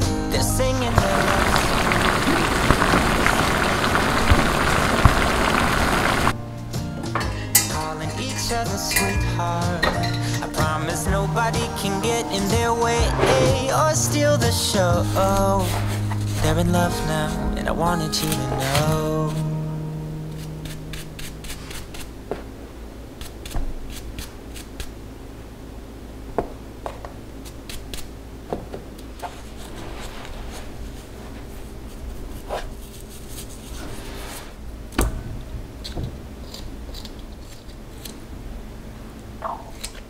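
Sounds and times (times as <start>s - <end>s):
ginger skin scraping: 20.3s - 22.2s, 23.2s - 24.9s.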